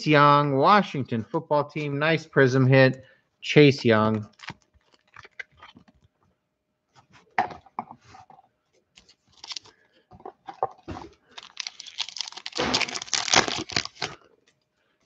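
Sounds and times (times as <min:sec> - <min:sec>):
wrapper crinkling and tearing: 0:04.3 - 0:05.9, 0:09.2 - 0:09.8, 0:10.8 - 0:14.3.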